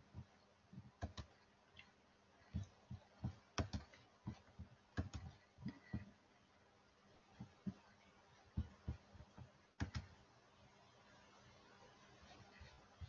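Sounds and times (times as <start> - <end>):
keyboard and mouse clicks: 0.8 - 6.1, 8.6 - 10.2.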